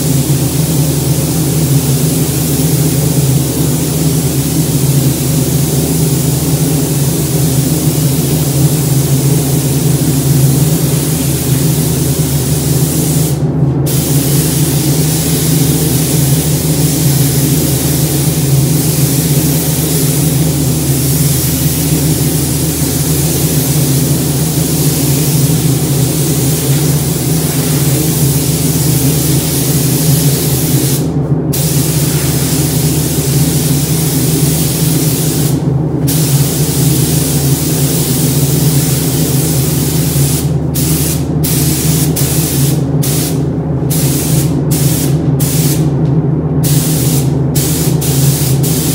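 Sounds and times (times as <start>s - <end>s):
steady low hum: 0.0s - 48.9s
paint spray gun hissing: 0.2s - 45.8s, 46.6s - 48.9s.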